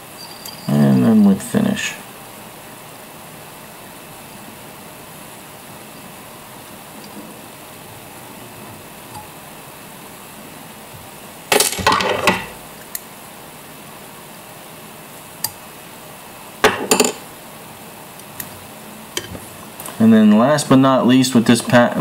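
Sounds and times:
small metal tools clinking: 0.2s - 0.8s.

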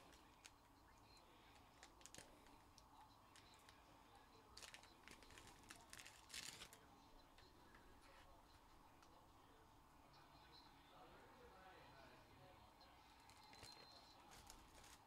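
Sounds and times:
crinkling rustles: 1.4s - 2.6s, 4.5s - 8.3s, 13.2s - 15.0s.

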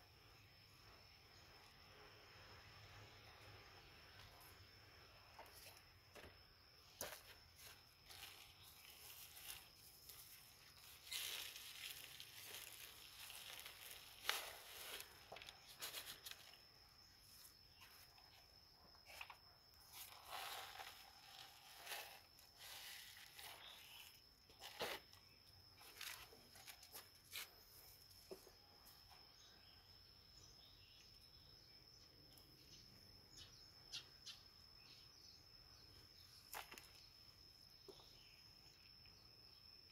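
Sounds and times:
soil rustling under hands: 5.2s - 28.3s.

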